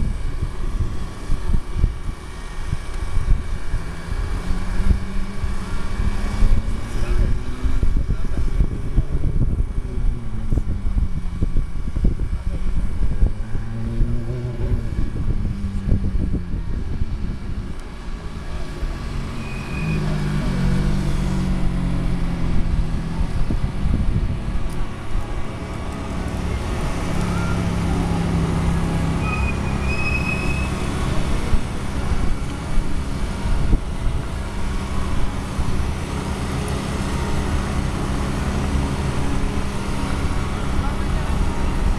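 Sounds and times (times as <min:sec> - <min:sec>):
car engine revving: 0:09.4 - 0:41.9.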